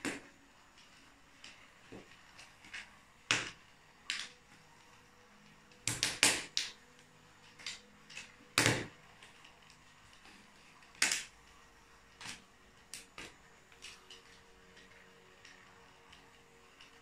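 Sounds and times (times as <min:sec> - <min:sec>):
toy train motor hum: 0:00.0 - 0:17.0.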